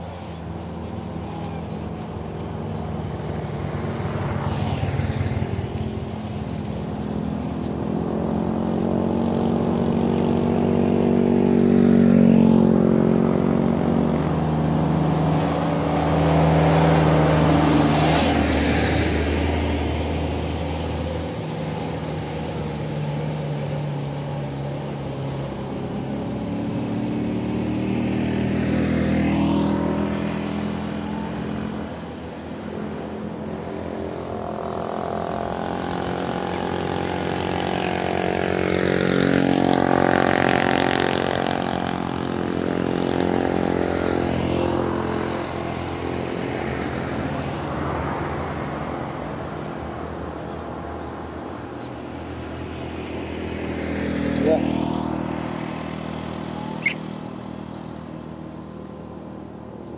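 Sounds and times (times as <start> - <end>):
truck engine approaching: 0.0 - 59.9
vehicles passing on road: 0.0 - 59.9.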